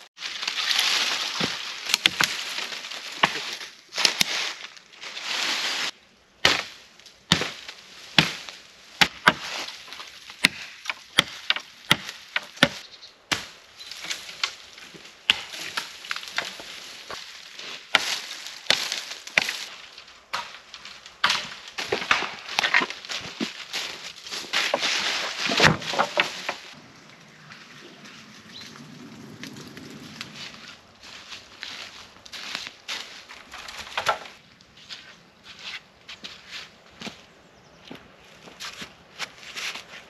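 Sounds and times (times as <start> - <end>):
rustling: 0.2 - 6.0, 13.4 - 26.8
wood being chopped: 1.3 - 2.4, 6.4 - 14.6, 15.2 - 16.7, 17.9 - 19.7, 20.3 - 23.6, 24.5 - 26.7.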